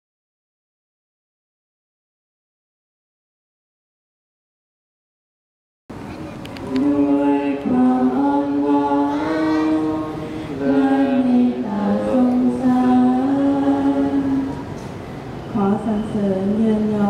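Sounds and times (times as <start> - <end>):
voices singing long held notes: 6.6 - 14.8.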